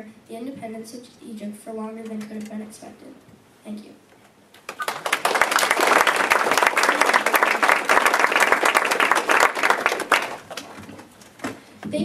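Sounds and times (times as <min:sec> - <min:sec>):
audience applauding: 0:04.7 - 0:11.1.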